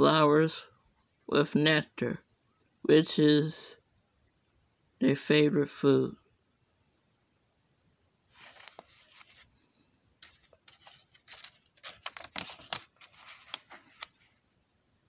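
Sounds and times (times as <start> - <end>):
paper pages rustling and turning: 8.3 - 9.5, 10.2 - 14.4.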